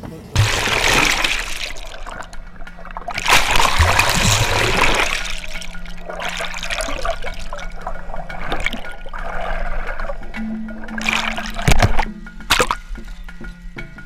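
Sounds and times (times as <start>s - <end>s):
underwater rushing water and bubbles: 0.4s - 13.0s.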